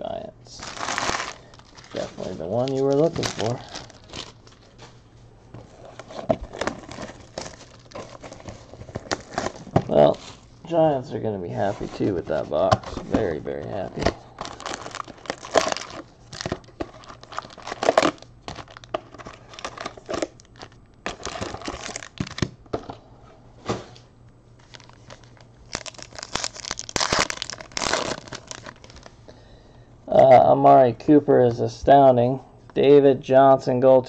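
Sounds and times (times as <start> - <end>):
foil wrappers crinkling and tearing: 0.5 - 5.0, 5.7 - 10.6, 11.6 - 22.5, 24.6 - 29.2.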